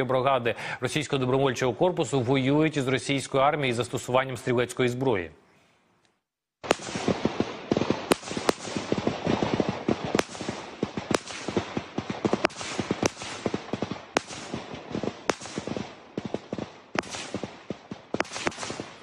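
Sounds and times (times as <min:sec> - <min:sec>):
gunshots: 0:06.6 - 0:19.0.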